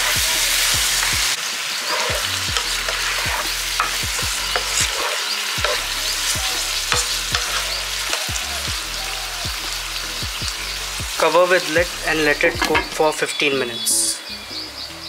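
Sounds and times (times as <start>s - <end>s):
food sizzling in oil: 0.0s - 15.0s
utensil clicking against pan: 2.0s - 5.8s, 6.9s - 8.4s.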